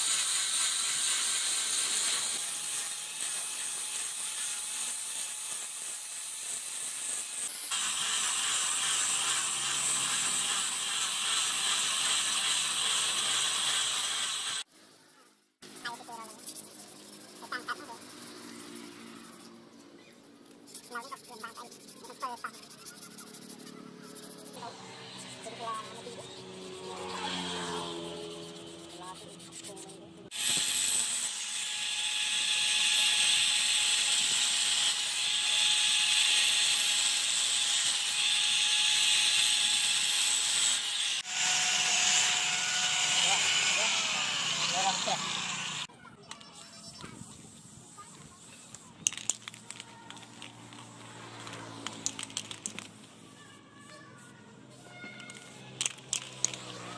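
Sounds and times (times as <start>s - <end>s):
sanding rasp on wood: 0.0s - 14.7s, 15.6s - 19.6s, 20.6s - 45.9s
angle grinder motor whine: 7.2s - 14.7s, 24.2s - 29.0s, 30.3s - 45.9s.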